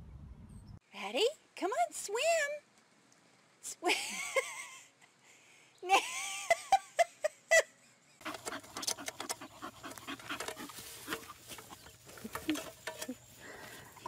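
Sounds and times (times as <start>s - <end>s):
dog digging in soil: 8.2s - 14.0s.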